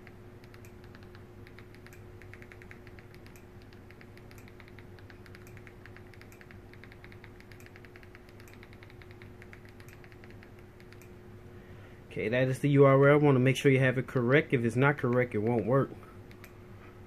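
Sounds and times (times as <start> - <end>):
small clicks: 0.0 - 11.2, 16.3 - 16.6
steady low hum: 0.0 - 17.0.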